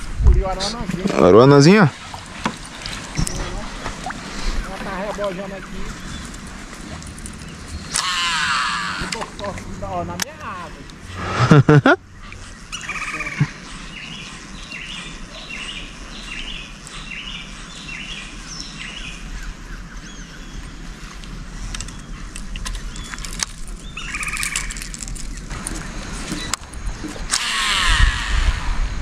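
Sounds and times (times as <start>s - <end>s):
birds chirping: 1.2s - 28.3s
harsh ringing bird call: 7.8s - 9.2s, 27.3s - 28.6s.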